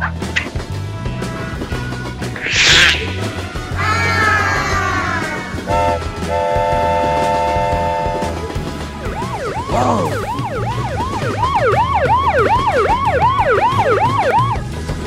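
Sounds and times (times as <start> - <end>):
falling whistle-like glide: 2.4 - 4.5
police siren yelp: 9.0 - 14.7.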